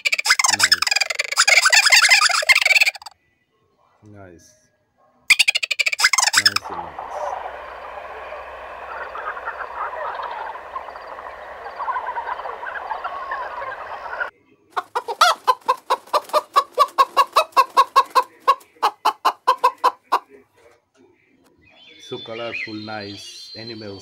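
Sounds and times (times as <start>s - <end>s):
chickens clucking: 0.0s - 3.1s, 5.3s - 20.8s
din of overlapping calls: 0.0s - 3.2s, 5.9s - 15.2s, 17.6s - 24.0s.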